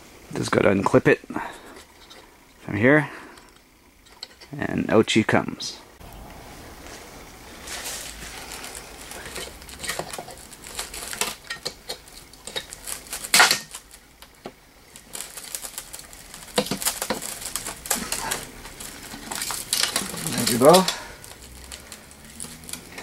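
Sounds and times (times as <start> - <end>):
plastic and metal clicking and rattling: 8.4 - 23.0.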